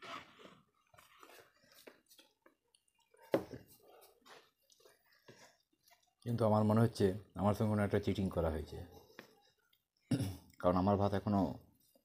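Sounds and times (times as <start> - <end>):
soft chewing: 0.3 - 7.4, 8.8 - 10.7.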